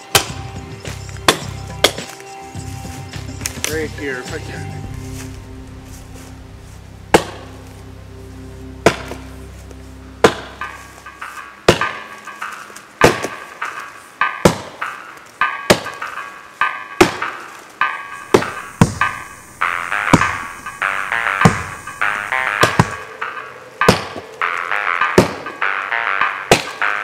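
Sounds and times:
background music: 0.0s - 27.0s
axe chopping into tree trunk: 1.2s - 2.2s, 7.2s - 7.4s, 11.7s - 15.0s, 15.7s - 16.2s, 17.0s - 17.4s.

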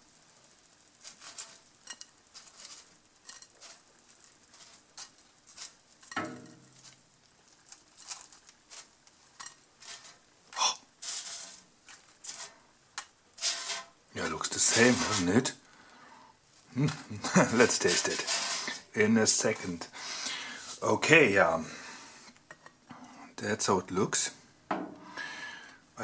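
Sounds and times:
baking paper rustling: 0.0s - 15.6s, 16.6s - 19.8s.

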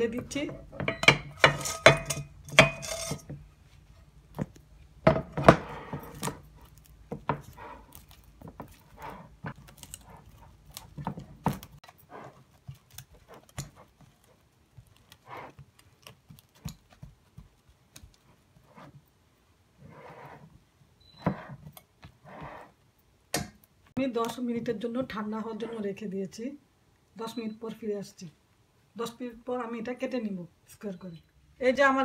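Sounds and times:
sticky mixture crackling: 6.1s - 18.6s.

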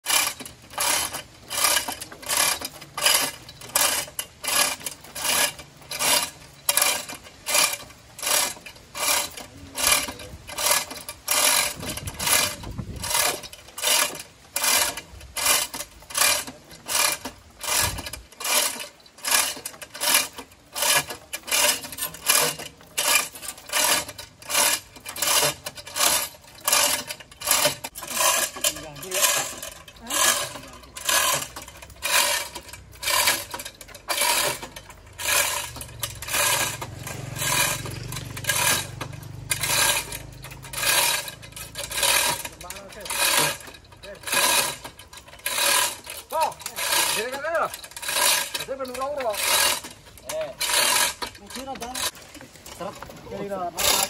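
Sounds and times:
chain hoist chain rattling: 0.0s - 54.0s.

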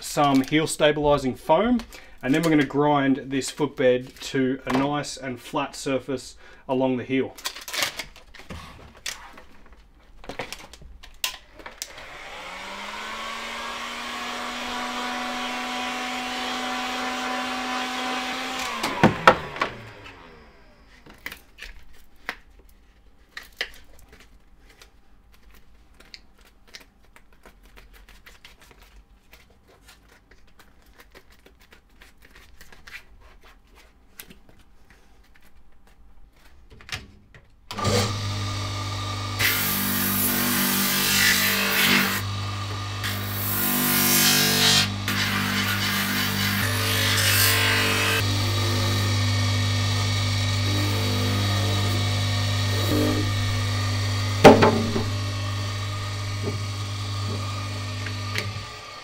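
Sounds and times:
grinding machine humming: 48.2s - 59.0s.

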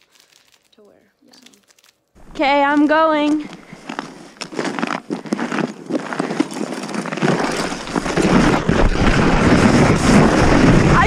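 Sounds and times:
sled crunching and scraping snow: 2.2s - 11.0s
snow hiss: 7.4s - 11.0s
wind on microphone: 7.4s - 11.0s.

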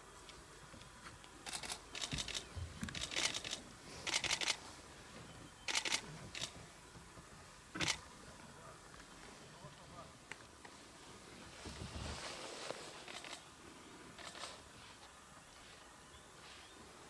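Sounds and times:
camera shutters clicking rapidly: 1.5s - 4.6s, 5.7s - 6.5s, 7.8s - 8.0s, 13.0s - 13.4s, 14.2s - 14.6s.

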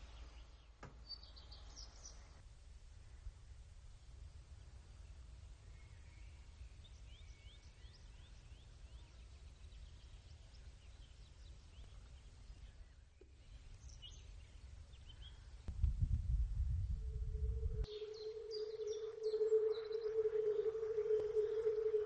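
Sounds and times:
steady low background rumble: 1.4s - 22.0s
faint small bird chirping: 4.5s - 15.7s, 16.8s - 22.0s.

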